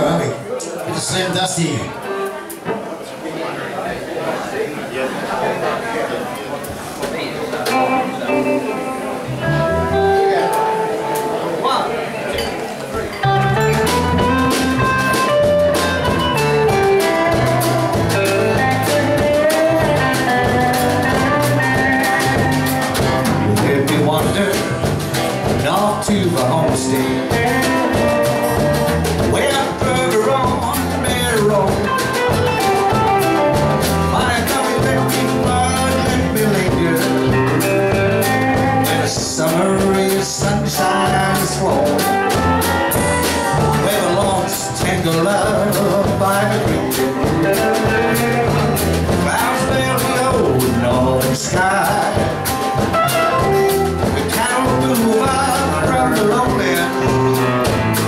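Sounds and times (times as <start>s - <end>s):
electric guitars: 7.5s - 58.0s
strummed acoustic guitar: 12.3s - 58.0s
drum kit beat: 13.0s - 58.0s.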